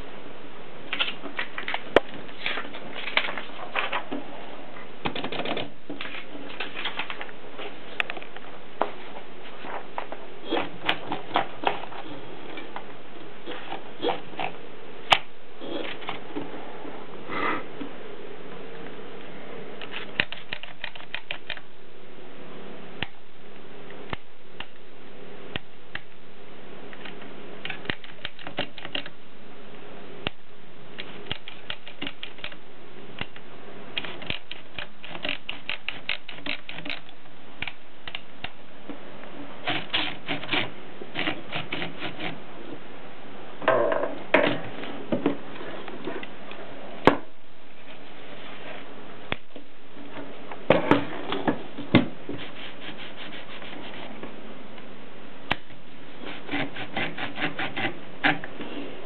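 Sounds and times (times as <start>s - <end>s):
typewriter mechanical noise: 19.8s - 21.6s, 27.6s - 29.1s, 31.0s - 32.6s, 34.0s - 38.2s, 39.6s - 42.3s.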